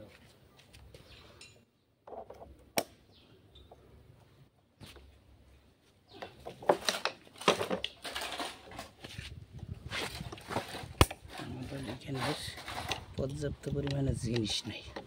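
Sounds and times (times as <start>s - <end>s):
hand tools clicking and scraping metal: 6.1s - 9.2s, 9.9s - 15.0s.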